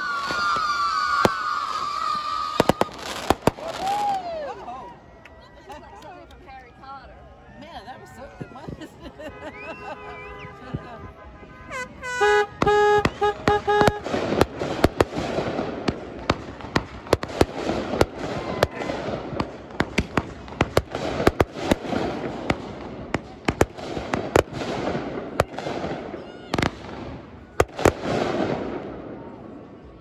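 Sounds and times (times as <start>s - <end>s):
fireworks bangs: 0.0s - 4.6s, 8.1s - 30.0s
fireworks crackling: 0.0s - 6.8s, 8.0s - 30.0s
horn blast and toots: 9.2s - 14.8s.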